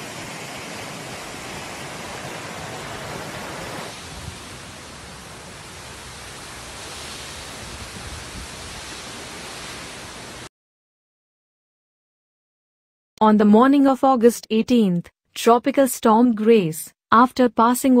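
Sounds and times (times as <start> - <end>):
heavy rain: 0.0 - 10.5
hurricane wind: 0.0 - 10.5
wind buffeting microphone: 3.8 - 10.4.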